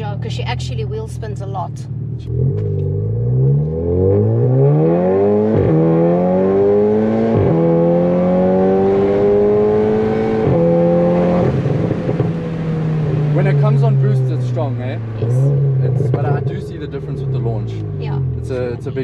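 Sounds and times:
car engine accelerating: 0.0 - 19.0
exhaust crack on upshift: 1.9 - 6.0, 9.0 - 18.5.

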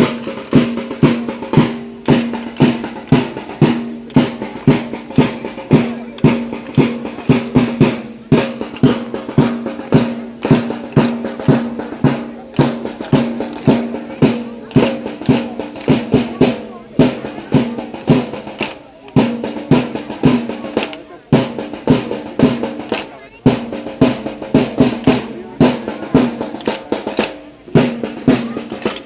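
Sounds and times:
drum music with steady beat: 0.0 - 29.0.

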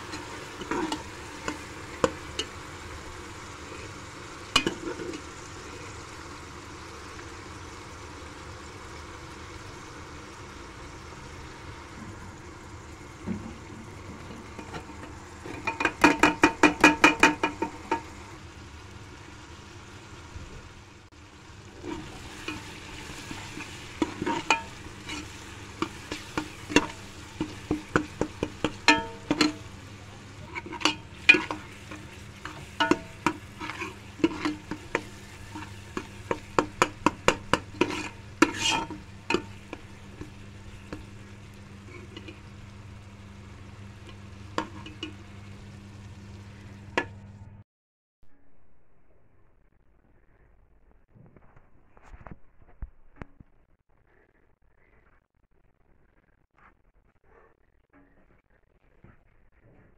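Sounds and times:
ladle scraping metal pot: 0.0 - 6.0, 13.2 - 18.2, 21.7 - 29.8, 30.4 - 42.5, 44.0 - 45.2
faint sizzle of oil: 0.0 - 47.6
ladle clinking against pot: 24.0 - 29.7.

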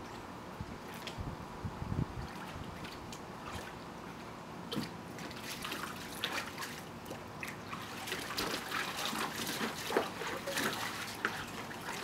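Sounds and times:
puppy splashing in water: 2.2 - 3.8, 4.7 - 12.0.

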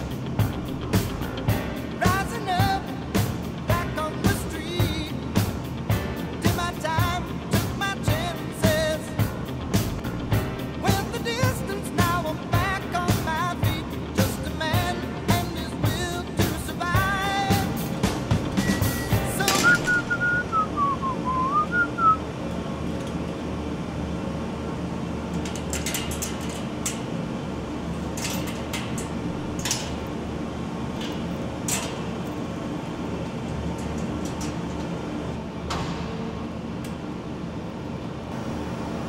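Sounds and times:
industrial hum: 0.0 - 39.0
man whistling a tune: 18.6 - 22.3.

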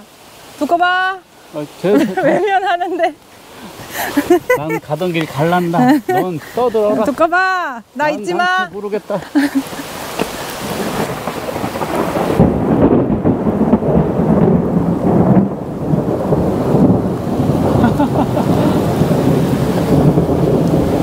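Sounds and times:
steady rain: 0.0 - 21.0
thunder rumbling: 9.6 - 21.0.

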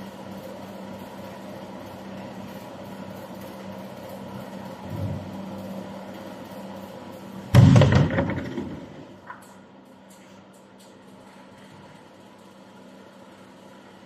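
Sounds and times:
machine humming: 4.7 - 9.5
loud burst of noise: 7.5 - 9.2.

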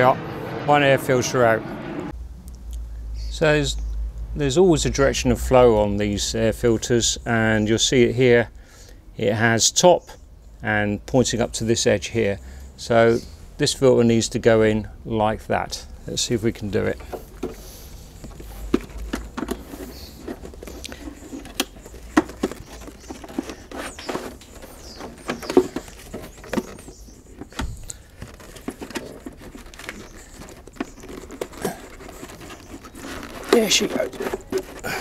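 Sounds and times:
plastic parts clicking and knocking: 16.8 - 35.0
plastic rustling: 16.8 - 35.0.

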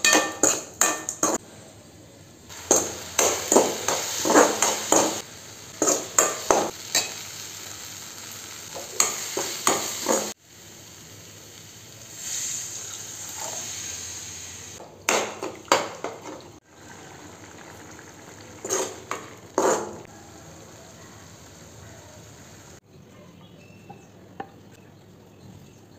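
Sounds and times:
low steady sizzle: 0.0 - 14.8, 15.7 - 22.8
metal spoon scraping a pan: 2.6 - 5.2, 5.8 - 7.2, 8.8 - 10.4, 18.6 - 20.1
water poured into pan: 15.4 - 19.4.

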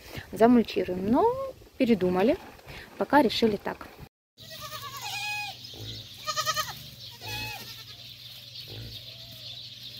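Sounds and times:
goats bleating: 4.4 - 8.1.

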